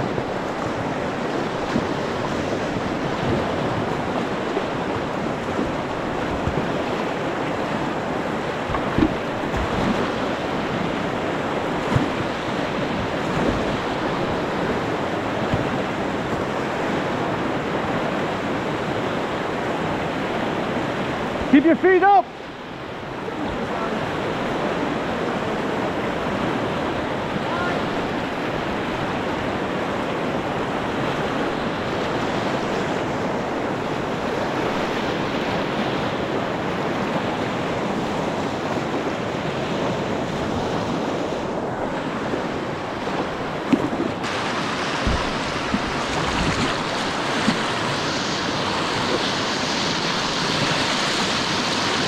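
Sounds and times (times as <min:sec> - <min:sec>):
white-water rapids rushing: 0:00.0 - 0:52.0
wind buffeting microphone: 0:28.6 - 0:52.0.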